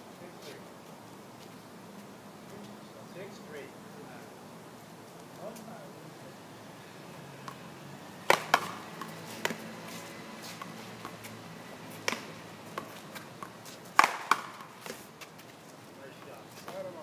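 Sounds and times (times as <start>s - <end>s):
ball struck by paddles: 8.2s - 9.6s, 12.0s - 15.0s
ball smacking off wall: 8.3s - 8.8s.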